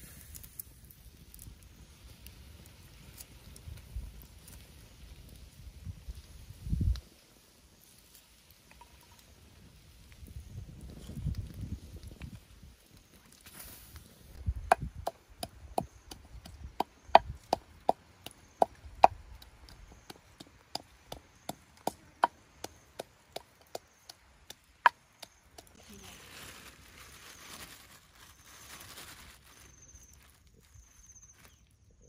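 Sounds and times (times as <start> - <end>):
pestle pounding in clay mortar: 14.6 - 25.3.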